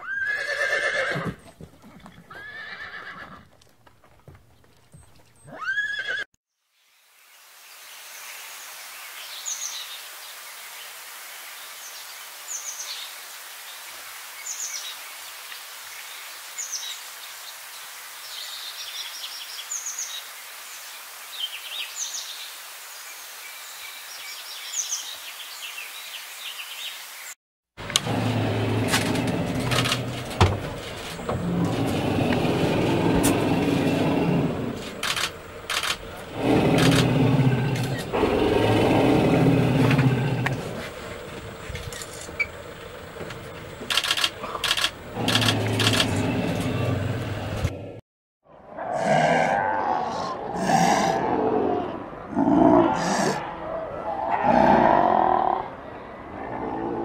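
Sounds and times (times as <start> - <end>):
horse whinnying: 0.0 - 3.5, 5.5 - 6.3
steady outdoor hiss: 5.7 - 47.9.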